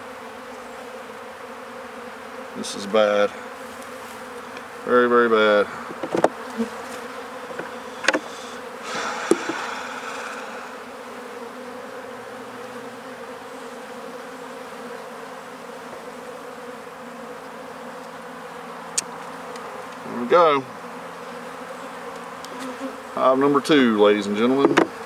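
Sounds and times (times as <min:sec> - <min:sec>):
bees buzzing: 0:00.0 - 0:25.0
wooden frame scraping: 0:05.7 - 0:09.8
hive tool knocking on wood: 0:05.8 - 0:08.3, 0:09.1 - 0:09.8, 0:24.5 - 0:25.0.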